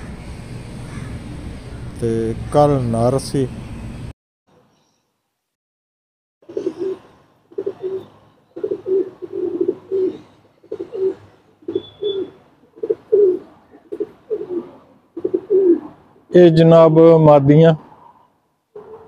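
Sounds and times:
pigeons cooing: 6.4 - 16.1.

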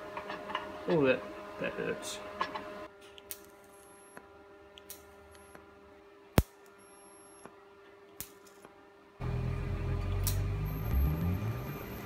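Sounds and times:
light welding clicks: 3.2 - 3.9, 4.8 - 5.6, 6.4 - 6.8, 8.1 - 8.7, 10.2 - 10.4
welder humming: 9.2 - 12.0.

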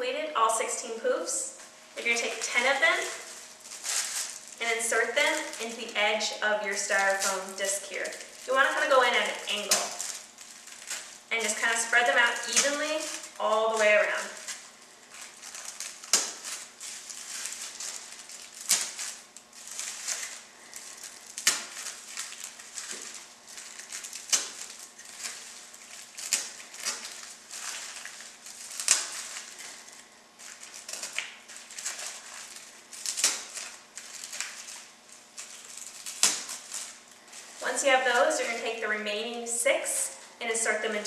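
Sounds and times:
steady low hum: 0.0 - 41.0
foil crinkling and rustling: 0.4 - 41.0.

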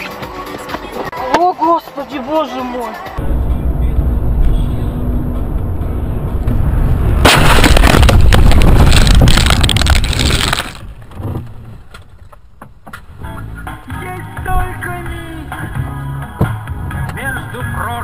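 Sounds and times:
road rumble inside a car: 3.2 - 7.3, 10.8 - 13.3
car crash: 3.2 - 12.2.

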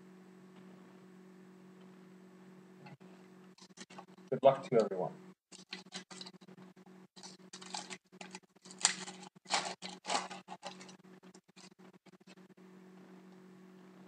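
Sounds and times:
foil wrapper crinkling: 5.5 - 6.4, 7.2 - 11.8.

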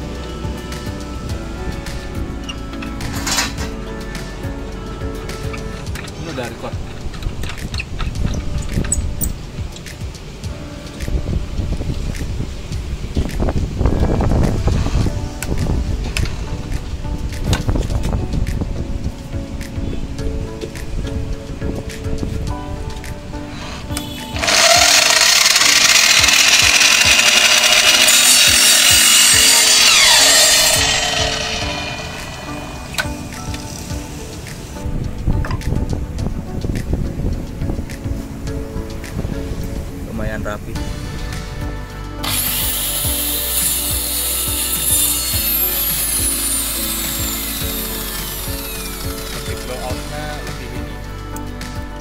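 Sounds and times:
miter saw cutting wood: 23.6 - 33.4, 42.2 - 50.6
saw blade winding down whine: 23.8 - 33.0, 42.2 - 49.9.

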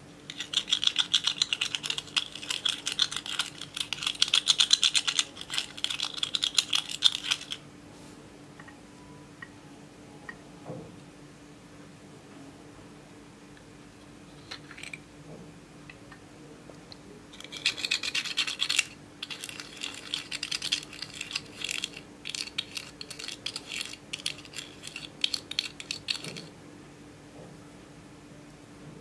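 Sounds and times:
spoon scratching eyeshadow: 0.3 - 7.6, 17.4 - 26.5.

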